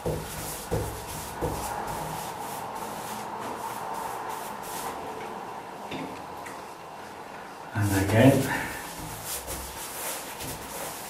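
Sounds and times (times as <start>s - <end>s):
paintbrush swishing on wood: 0.0s - 5.0s, 8.7s - 11.0s.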